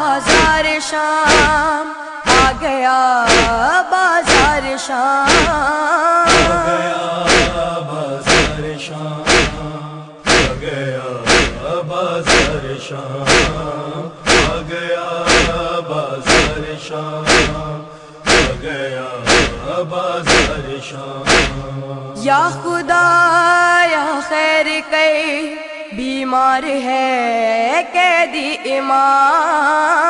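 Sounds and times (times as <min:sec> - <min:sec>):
chorus chanting a lament: 0:00.0 - 0:30.0
sharp percussive beat: 0:00.3 - 0:00.7, 0:01.3 - 0:01.7, 0:02.3 - 0:02.6, 0:03.3 - 0:03.7, 0:04.3 - 0:04.6, 0:05.3 - 0:05.7, 0:06.3 - 0:06.7, 0:07.3 - 0:07.7, 0:08.3 - 0:08.7, 0:09.3 - 0:10.7, 0:11.3 - 0:11.7, 0:12.3 - 0:12.6, 0:13.3 - 0:13.6, 0:14.2 - 0:14.7, 0:15.3 - 0:15.7, 0:16.3 - 0:16.7, 0:17.3 - 0:17.7, 0:18.3 - 0:18.7, 0:19.3 - 0:19.7, 0:20.3 - 0:20.6, 0:21.3 - 0:21.6.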